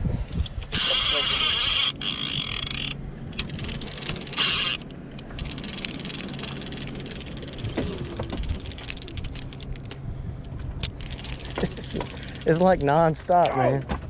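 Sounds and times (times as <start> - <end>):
low steady hum: 0.0 - 14.0
fishing reel clicking: 0.7 - 7.7, 10.9 - 12.9.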